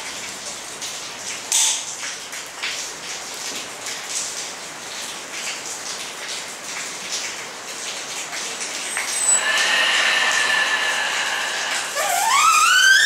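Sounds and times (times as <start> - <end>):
high-pressure air hissing through hose: 9.0 - 13.0
whistling tone: 9.0 - 13.0.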